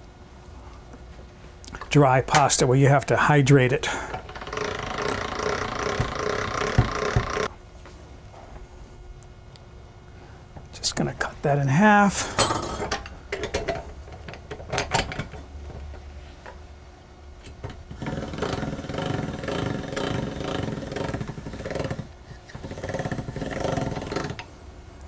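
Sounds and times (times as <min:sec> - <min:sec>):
pasta machine gears clicking: 0:04.0 - 0:07.5, 0:17.9 - 0:24.5
scattered knocks: 0:04.2 - 0:07.5.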